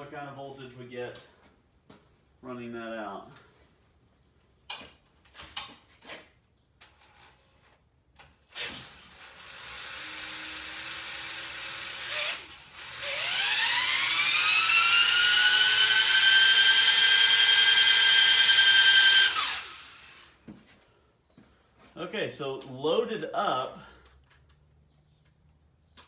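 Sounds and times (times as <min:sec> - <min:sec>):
power drill motor whine: 0:08.5 - 0:20.4.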